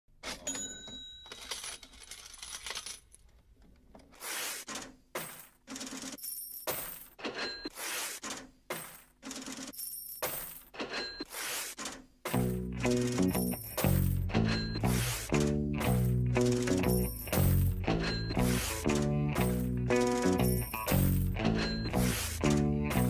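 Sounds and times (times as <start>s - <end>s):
coins jingling and spilling: 5.3s - 7.2s, 9.7s - 10.7s, 15.9s - 23.0s.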